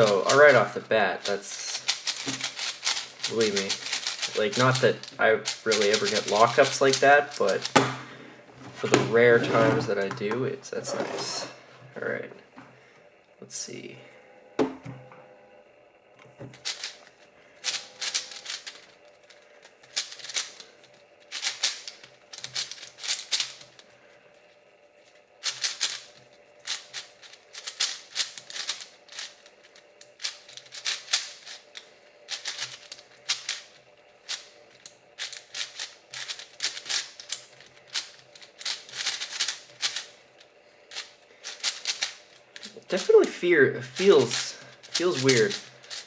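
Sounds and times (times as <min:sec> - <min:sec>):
puzzle cube clacking: 0:01.3 - 0:08.1, 0:16.5 - 0:17.0, 0:17.6 - 0:18.9, 0:19.9 - 0:20.7, 0:21.3 - 0:23.6, 0:25.4 - 0:29.3, 0:30.1 - 0:31.6, 0:32.3 - 0:40.1, 0:40.9 - 0:43.1, 0:44.0 - 0:46.0.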